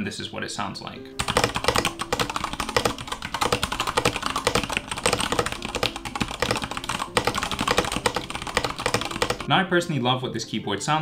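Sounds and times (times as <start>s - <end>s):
mechanical keyboard typing: 1.2s - 9.5s.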